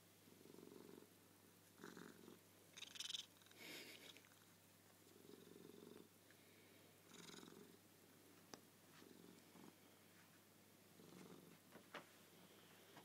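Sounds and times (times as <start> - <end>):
cat purring: 0.3 - 6.1, 7.0 - 7.8, 8.9 - 9.9, 10.9 - 11.8.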